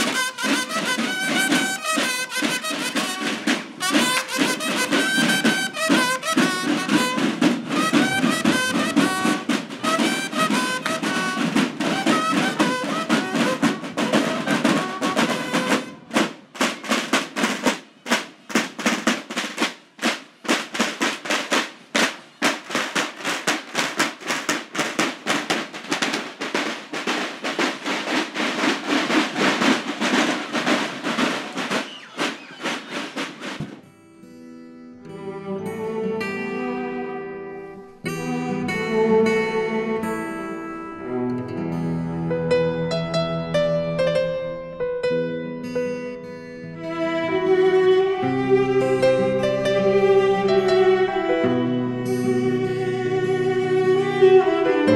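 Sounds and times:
trumpets playing a melody: 0.0 - 16.4
snare and bass drums: 0.0 - 33.8.

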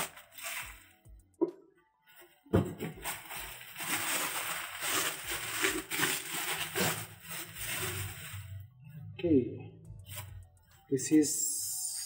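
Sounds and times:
bubble wrap rustling and crinkling: 0.0 - 1.1, 2.0 - 8.6.

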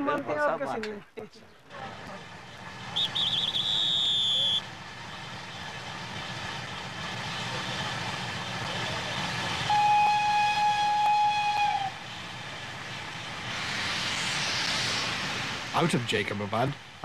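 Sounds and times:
constant hiss and rumble: 1.6 - 17.0
steam locomotive whistle: 2.9 - 4.7, 9.6 - 12.0
steam hissing: 6.8 - 17.0.

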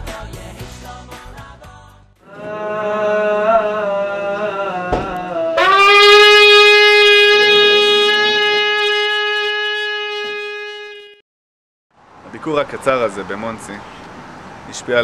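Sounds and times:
shofar blast: 2.3 - 11.2.

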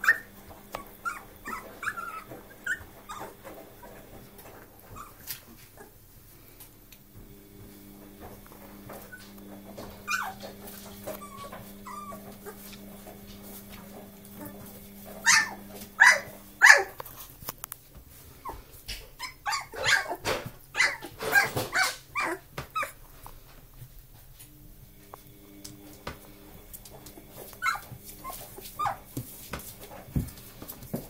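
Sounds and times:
puppies yapping: 0.0 - 6.0, 8.9 - 17.3, 18.4 - 23.0, 26.5 - 30.8.

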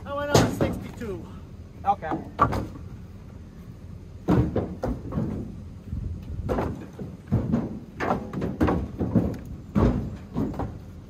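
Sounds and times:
firewood pieces knocking: 0.2 - 1.2, 2.0 - 2.9, 4.2 - 5.6, 6.2 - 11.0.

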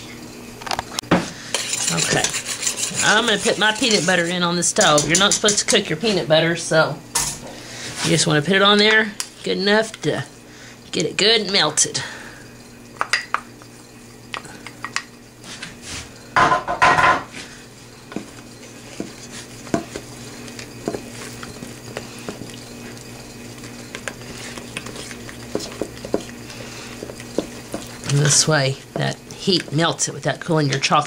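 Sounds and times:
utensil scraping glass and metal: 1.5 - 5.3
utensil clatter: 1.5 - 5.8, 18.0 - 31.0.

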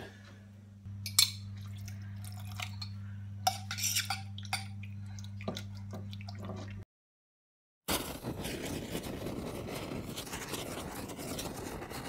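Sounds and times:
steady low hum: 0.0 - 6.8.

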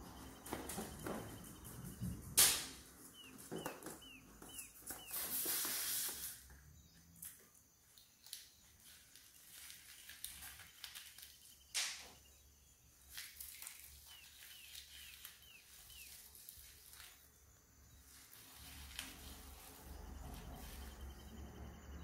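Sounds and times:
small bird chirping: 0.0 - 22.0
sharp snap: 2.4 - 2.9, 11.7 - 12.1.

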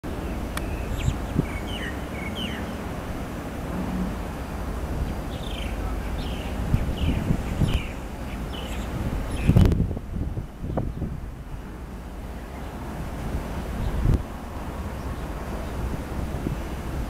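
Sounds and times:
birds chirping: 0.1 - 3.0, 3.9 - 9.7
metro train moving slowly: 0.1 - 9.4, 10.0 - 17.0
wind on microphone: 0.1 - 17.0.

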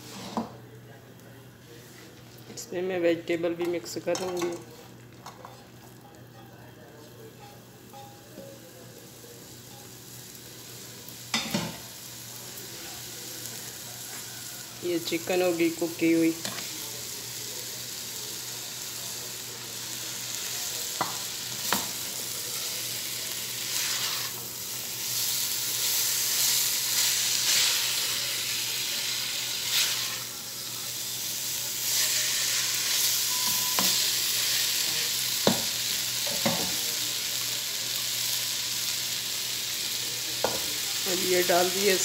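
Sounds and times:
food sizzling in a pan: 0.0 - 0.5, 3.8 - 42.0
spatula stirring food: 21.0 - 35.6.

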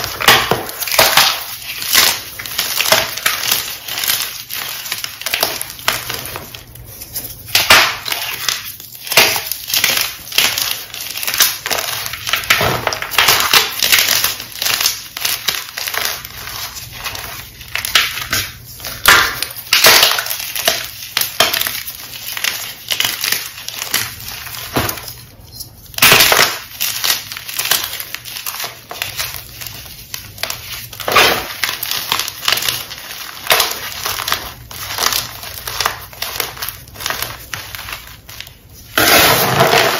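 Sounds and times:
hands crushing chalk blocks: 0.0 - 25.2, 25.9 - 39.9.

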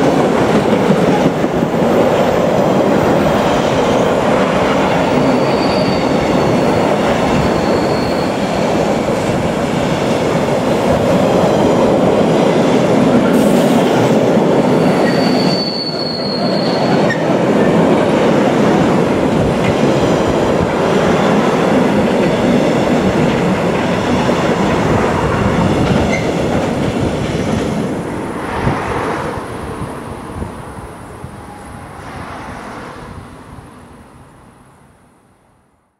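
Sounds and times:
freight train rolling past: 0.0 - 35.3.

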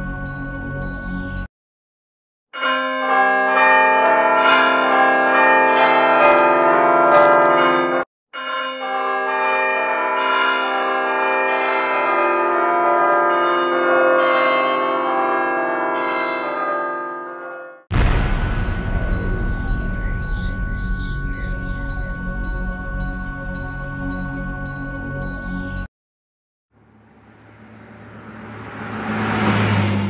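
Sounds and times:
bells ringing: 2.6 - 25.9.

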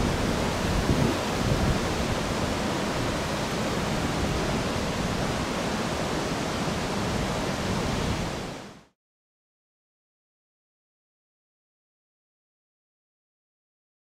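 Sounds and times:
rushing water roar: 0.0 - 9.0.

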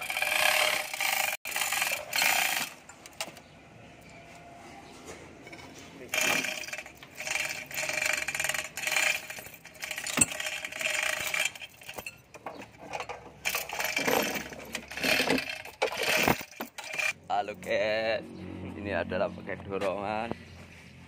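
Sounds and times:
steel chain rattling against metal: 0.0 - 2.9, 6.1 - 17.2.

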